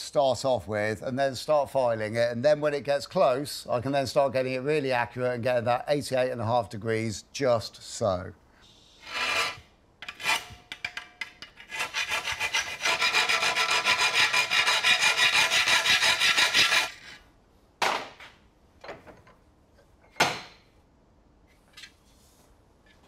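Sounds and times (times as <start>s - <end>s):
hand file rasping on steel: 9.0s - 10.7s, 11.5s - 17.2s.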